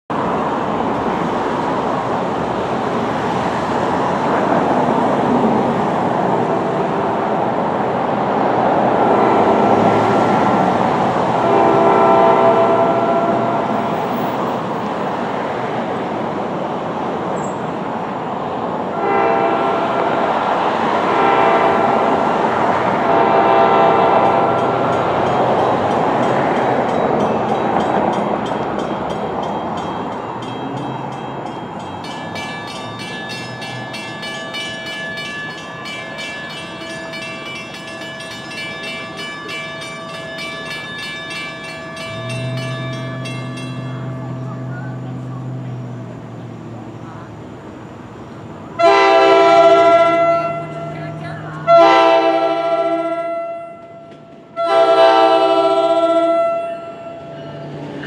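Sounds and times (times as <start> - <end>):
distant train air horn blasts: 6.2 - 7.6, 8.9 - 10.3, 11.3 - 14.0, 18.9 - 25.1, 48.8 - 57.2.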